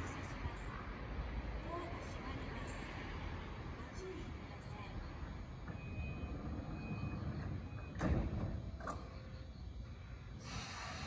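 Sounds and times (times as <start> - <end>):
low hum of standing train: 0.0 - 11.0
sliding doors knocking shut: 5.6 - 9.2
door warning beeps: 5.6 - 9.4.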